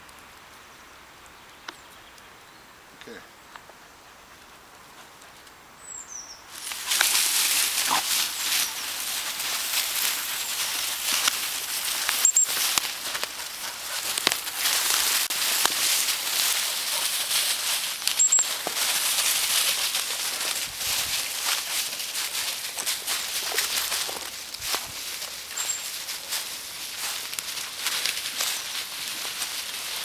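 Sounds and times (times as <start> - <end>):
footsteps crunching dry leaves: 6.5 - 30.0.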